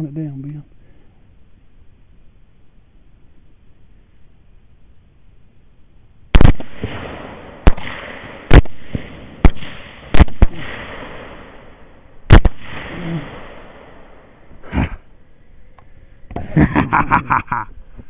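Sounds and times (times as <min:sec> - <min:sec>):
rifle shots with echo: 0:06.3 - 0:14.5.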